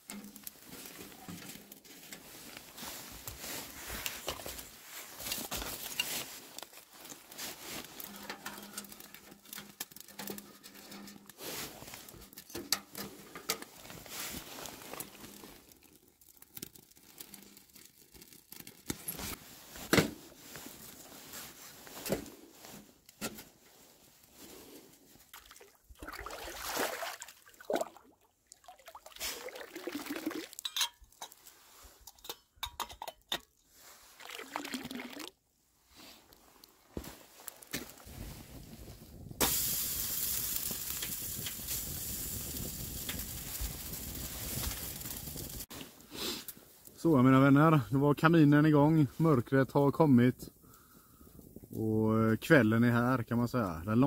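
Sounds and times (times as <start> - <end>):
fire crackling in wood stove: 0.0 - 25.4, 35.8 - 48.8, 49.4 - 51.8
water sloshing: 25.3 - 30.6.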